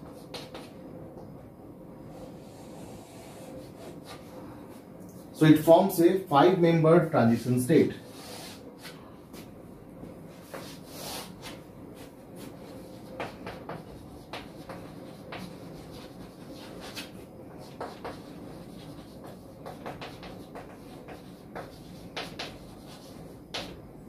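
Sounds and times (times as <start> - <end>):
chalk writing on chalkboard: 0.0 - 0.7, 2.4 - 4.2, 10.4 - 23.8.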